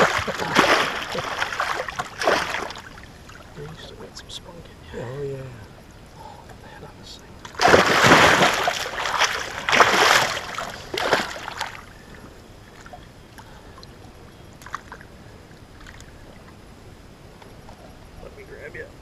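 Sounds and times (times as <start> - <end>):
fish thrashing and splashing water: 0.0 - 3.9, 7.5 - 13.0.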